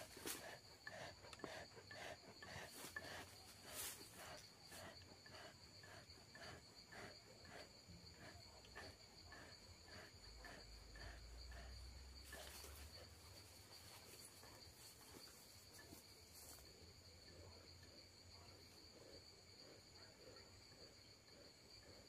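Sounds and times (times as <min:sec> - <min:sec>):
high insect trill: 0:00.0 - 0:22.0.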